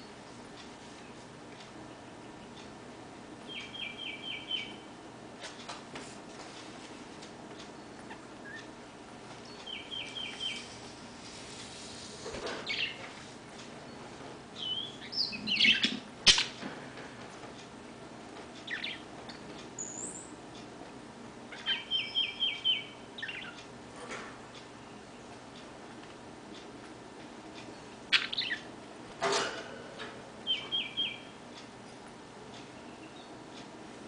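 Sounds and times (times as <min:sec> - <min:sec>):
bird chirping: 0:03.5 - 0:04.9, 0:09.4 - 0:10.7, 0:12.6 - 0:13.1, 0:14.6 - 0:16.5, 0:18.6 - 0:19.1, 0:19.8 - 0:20.4, 0:21.5 - 0:23.6, 0:27.7 - 0:28.7, 0:30.4 - 0:31.4, 0:32.8 - 0:33.4.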